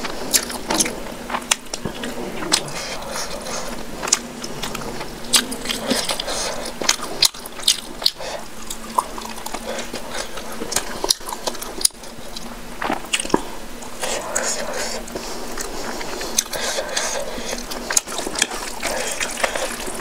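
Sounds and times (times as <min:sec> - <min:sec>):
wet chewing: 0:00.0 - 0:20.0
sharp wet clicks and smacks: 0:00.3 - 0:02.7.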